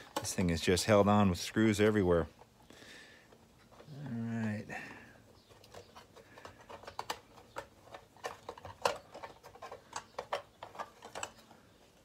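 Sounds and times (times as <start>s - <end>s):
plastic parts clicking: 5.2s - 12.0s.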